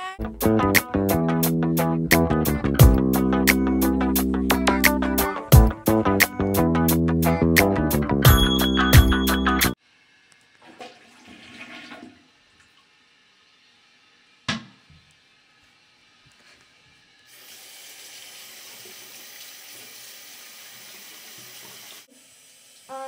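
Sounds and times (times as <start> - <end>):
tap water running into sink: 10.6 - 12.9, 17.3 - 23.0.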